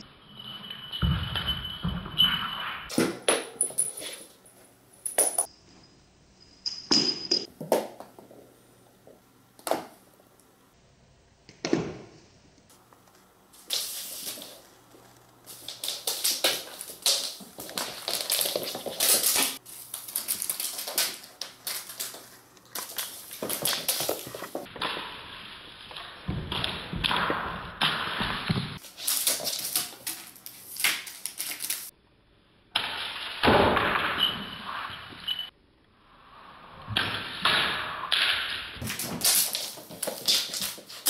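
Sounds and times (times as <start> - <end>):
cat batting toys on wood floor: 13.6 - 25.2, 25.9 - 31.9, 38.8 - 41.0.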